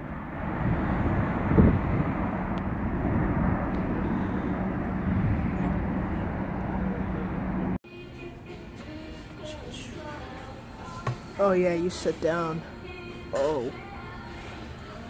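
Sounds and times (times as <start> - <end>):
jet engines rumbling at climb: 0.0 - 7.8.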